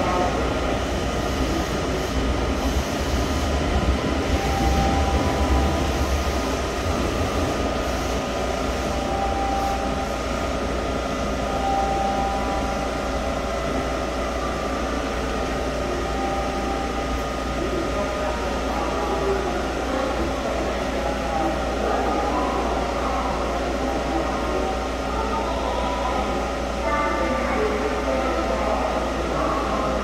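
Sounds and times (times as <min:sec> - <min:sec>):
train equipment humming: 0:00.0 - 0:30.0
faint steady tones: 0:02.0 - 0:20.9.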